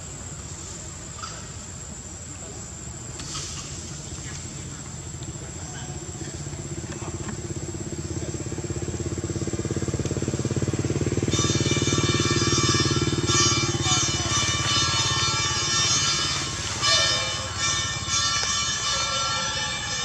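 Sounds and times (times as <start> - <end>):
high insect whine: 0.0 - 20.0
small engine droning: 3.2 - 20.0
music with held tones: 11.4 - 20.0.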